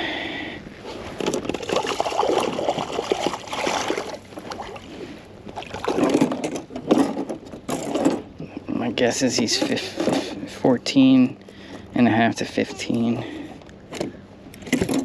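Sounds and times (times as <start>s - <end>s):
water splashing against kayak: 1.2s - 6.5s.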